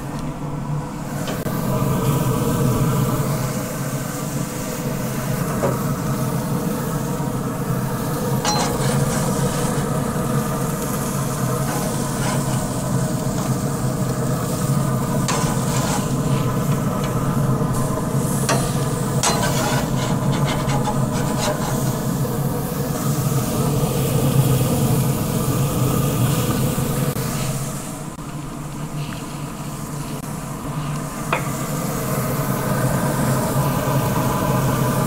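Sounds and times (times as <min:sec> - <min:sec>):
grill fan humming: 0:00.0 - 0:35.0
burger patties sizzling on grill: 0:01.0 - 0:27.8, 0:29.0 - 0:35.0
metal spatula scraping grate: 0:08.4 - 0:09.8, 0:11.6 - 0:13.6, 0:15.2 - 0:17.2, 0:18.5 - 0:22.1.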